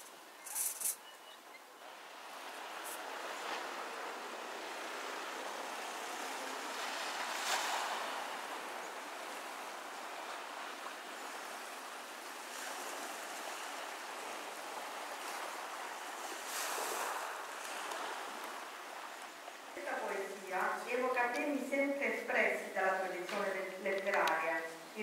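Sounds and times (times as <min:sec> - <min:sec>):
small waves on pebble shore: 0:01.9 - 0:20.2.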